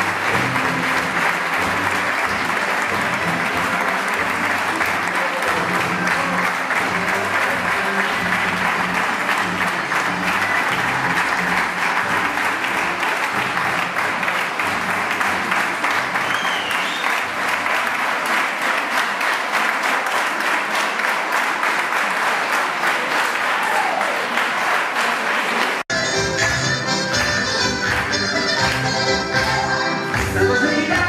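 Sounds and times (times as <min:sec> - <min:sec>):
music: 0:00.0 - 0:17.7, 0:25.9 - 0:31.0
audience applauding: 0:00.0 - 0:31.0.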